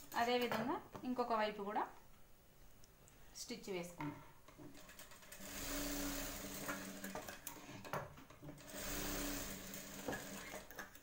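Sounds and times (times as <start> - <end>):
sewing machine stitching: 4.7 - 7.8, 8.4 - 11.0.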